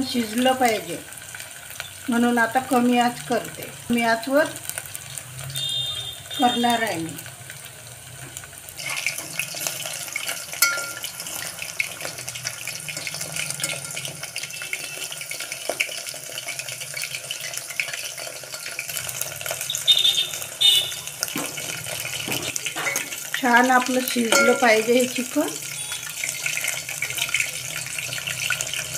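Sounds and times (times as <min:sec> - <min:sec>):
chicken deep-frying in hot oil: 0:00.0 - 0:28.9
oil popping: 0:08.2 - 0:14.8, 0:15.4 - 0:28.9.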